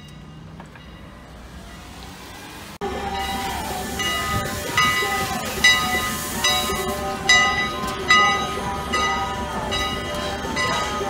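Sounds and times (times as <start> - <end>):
locomotive bell ringing: 0.0 - 1.9, 2.8 - 11.0
locomotive engine low rumble: 0.0 - 11.0
hiss of steam: 1.8 - 7.2.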